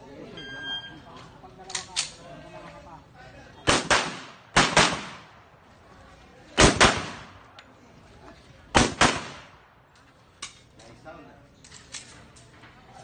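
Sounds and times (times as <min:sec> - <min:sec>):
pistol shots with ringing tail: 0:03.7 - 0:05.3, 0:06.6 - 0:07.4, 0:08.8 - 0:09.6.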